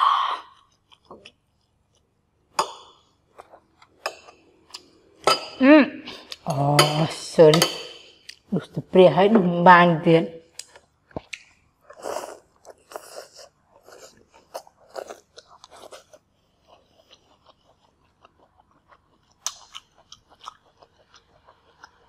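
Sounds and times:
chewing crunchy food: 0:00.5 - 0:05.1, 0:10.6 - 0:22.0.

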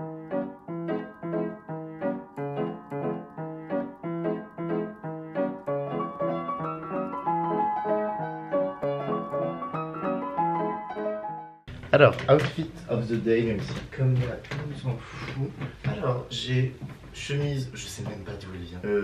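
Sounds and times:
piano music: 0:00.0 - 0:13.6.

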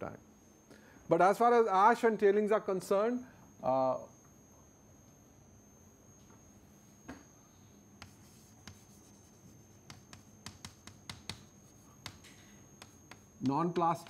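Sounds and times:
chalk tapping and scratching: 0:08.0 - 0:14.0.

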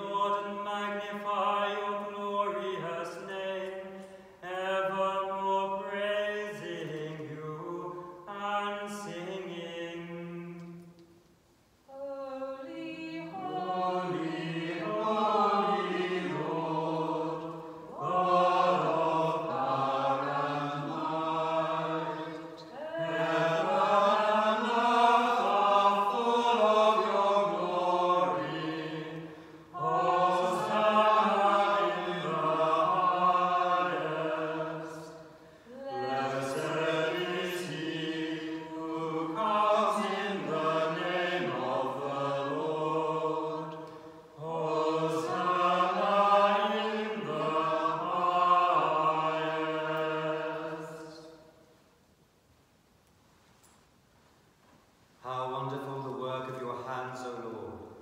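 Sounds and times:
church choir singing: 0:00.0 - 0:11.0, 0:11.9 - 0:51.8.

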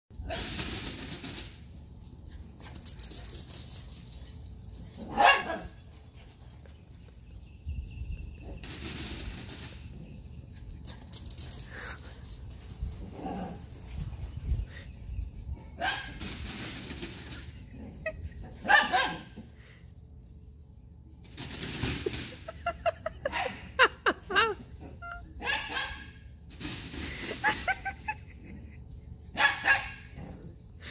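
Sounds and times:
small dog barking: 0:05.1 - 0:05.7, 0:18.6 - 0:19.3, 0:25.4 - 0:26.1, 0:29.4 - 0:30.0.

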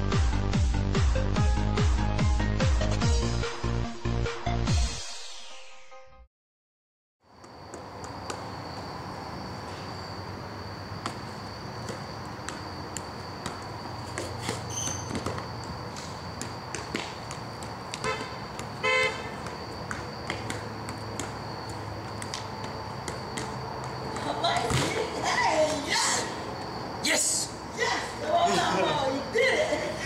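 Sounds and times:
vehicle horn toots: 0:18.0 - 0:19.4.

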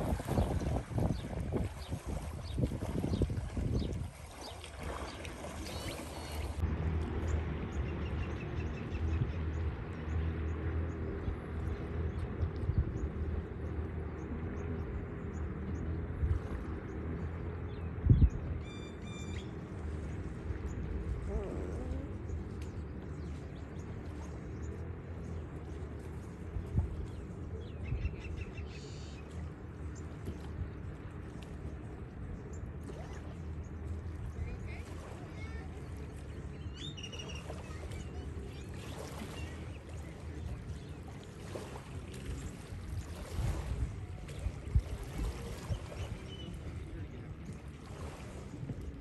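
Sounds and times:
wind rumbling on microphone: 0:00.0 - 0:49.0
faint bird chirps: 0:18.6 - 0:19.5.

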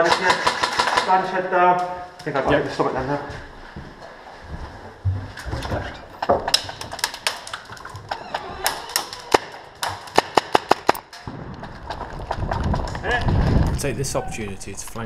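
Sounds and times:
airsoft rifle shots: 0:10.1 - 0:11.4.

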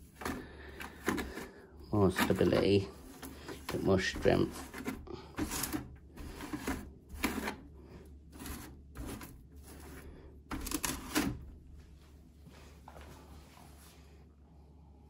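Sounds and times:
metal spoon scraping clay through mesh: 0:00.2 - 0:11.4.

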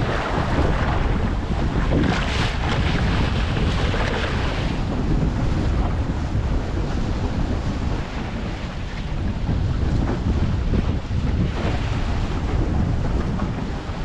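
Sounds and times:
water splashing along a hull: 0:00.0 - 0:14.0
wind buffeting microphone: 0:00.0 - 0:14.0.

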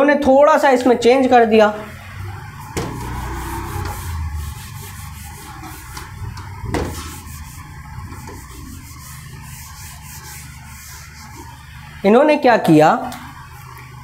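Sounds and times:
rubbing strokes on a board: 0:02.0 - 0:11.9.

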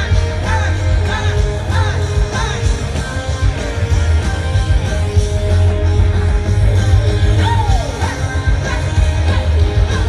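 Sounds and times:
man singing: 0:00.0 - 0:03.8
live pop-rock band: 0:00.0 - 0:10.0.

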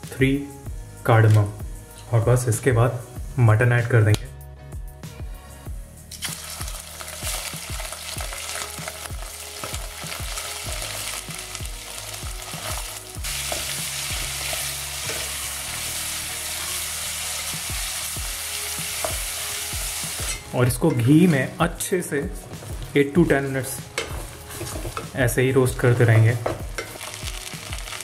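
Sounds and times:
meat sizzling in hot fat: 0:06.1 - 0:20.5, 0:22.6 - 0:25.8, 0:26.7 - 0:28.0
spatula scraping a pot: 0:23.9 - 0:25.2.

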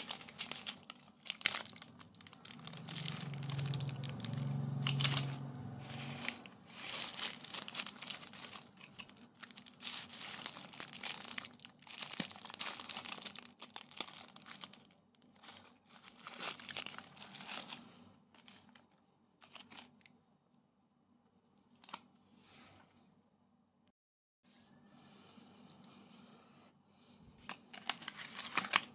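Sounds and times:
plastic wrapper crinkling and tearing: 0:00.0 - 0:20.1, 0:21.7 - 0:22.0, 0:27.5 - 0:28.9.

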